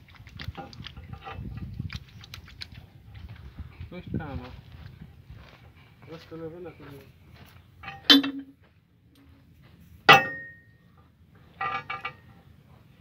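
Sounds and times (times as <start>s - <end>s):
tools clanging on metal: 7.8s - 8.6s, 10.1s - 10.7s, 11.6s - 12.5s.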